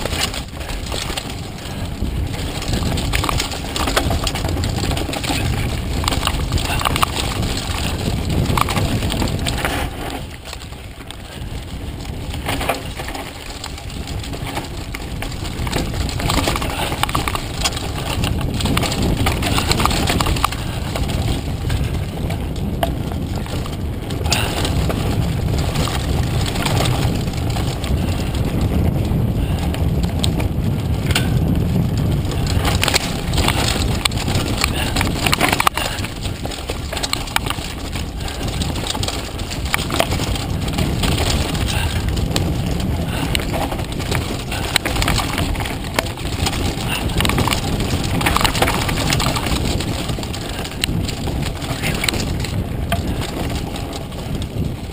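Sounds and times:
bike clattering over bumps: 0.0s - 54.9s
tyres rolling on dirt: 0.0s - 54.9s
wind on microphone: 0.0s - 54.9s.

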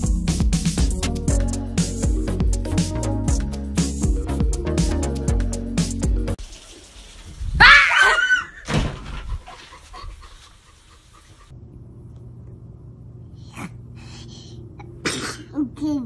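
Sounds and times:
cat yowling: 7.6s - 8.6s.

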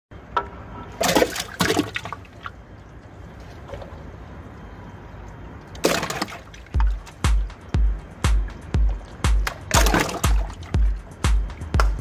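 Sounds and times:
water balloon splashing in toilet: 5.8s - 7.0s, 9.4s - 11.0s.

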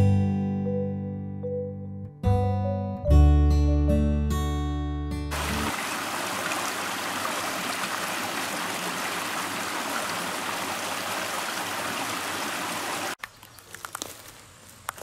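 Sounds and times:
stream rushing: 5.3s - 13.2s.

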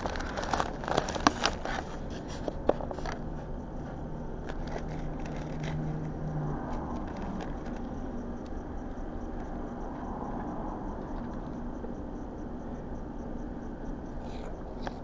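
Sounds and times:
paper crackling: 0.0s - 7.9s
road traffic rumble: 0.0s - 15.0s
room hum: 0.0s - 15.0s.

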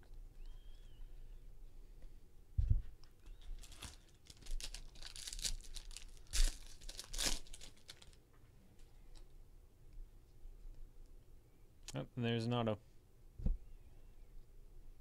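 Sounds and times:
foil wrapper tearing and crinkling: 3.6s - 8.2s
dull thump: 13.4s - 13.6s.

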